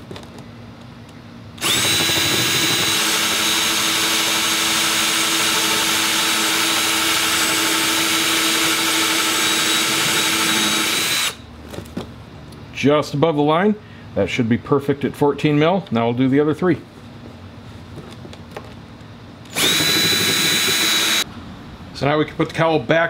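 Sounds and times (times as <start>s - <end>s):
cordless drill whining through plastic: 1.6s - 11.4s, 19.5s - 21.2s.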